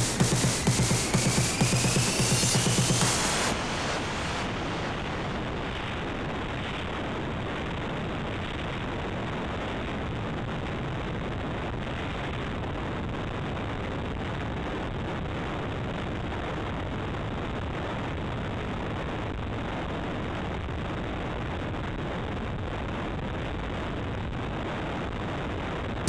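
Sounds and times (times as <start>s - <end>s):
rushing wind noise: 3.1s - 15.8s.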